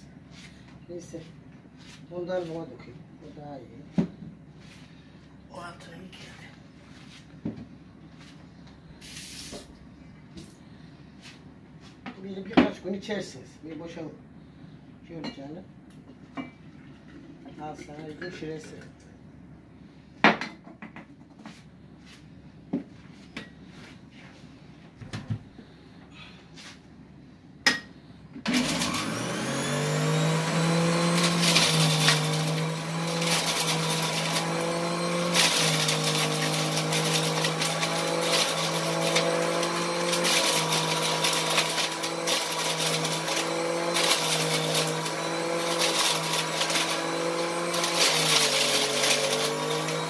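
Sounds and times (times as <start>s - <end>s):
electric juicer motor humming: 28.4s - 50.0s
fruit rattling and grinding in juicer: 28.4s - 50.0s.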